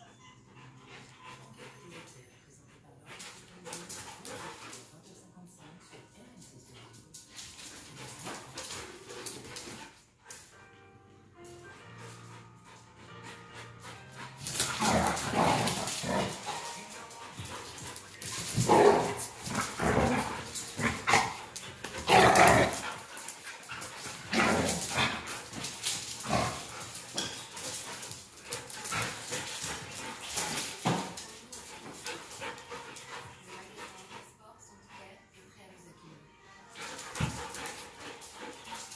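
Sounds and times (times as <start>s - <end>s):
dogs barking: 18.6s - 23.0s.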